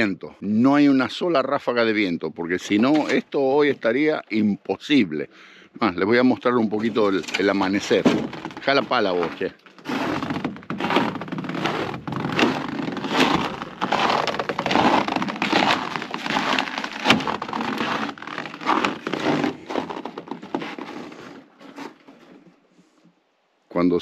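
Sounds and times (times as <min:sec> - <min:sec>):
footsteps crunching in snow: 0:06.9 - 0:22.4.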